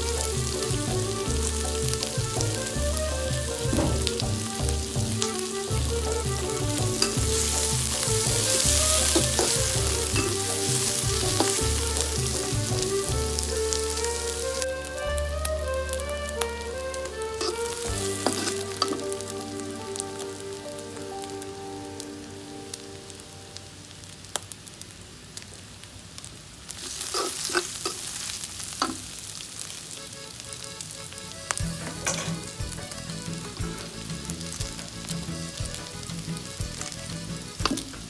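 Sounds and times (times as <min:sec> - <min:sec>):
food sizzling in hot oil: 0:00.0 - 0:38.0
metal spatula scraping a pan: 0:06.4 - 0:14.7, 0:17.4 - 0:19.2, 0:26.9 - 0:28.1, 0:31.8 - 0:32.5.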